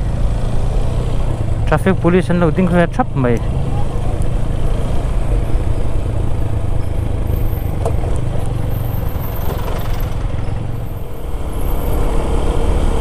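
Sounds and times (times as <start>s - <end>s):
motorcycle engine running: 2.8s - 13.0s.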